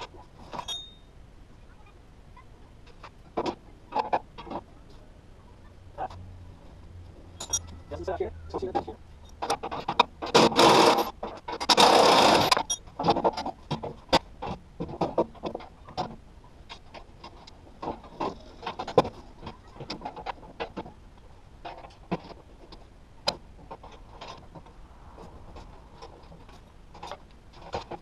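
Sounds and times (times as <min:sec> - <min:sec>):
metal parts clinking: 0:00.5 - 0:01.0, 0:07.4 - 0:07.8.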